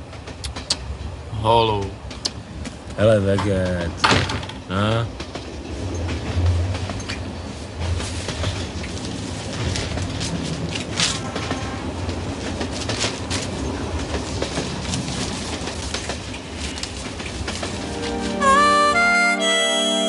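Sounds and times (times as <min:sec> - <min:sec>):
train rumble inside carriage: 0:00.0 - 0:20.0
wheels clicking and knocking: 0:03.3 - 0:17.8.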